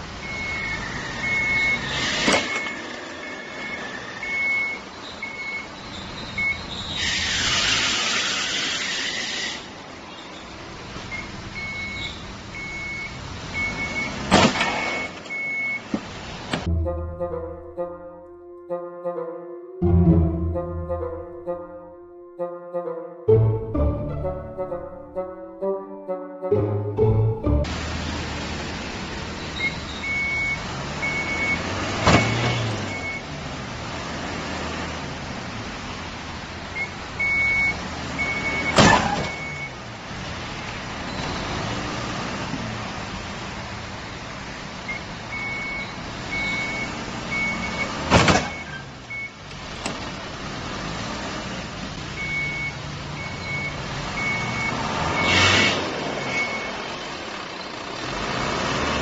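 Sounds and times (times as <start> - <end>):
loud vehicle impacts: 14.1 - 16.7, 30.8 - 33.0, 38.3 - 39.6, 47.1 - 49.0
engine running: 49.5 - 59.0.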